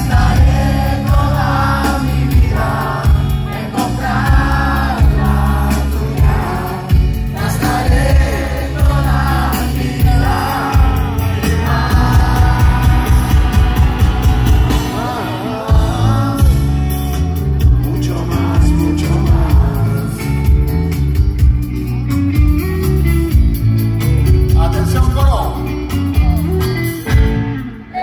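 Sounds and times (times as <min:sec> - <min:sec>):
crowd singing along: 0:00.0 - 0:21.4
live rock band: 0:00.0 - 0:28.0.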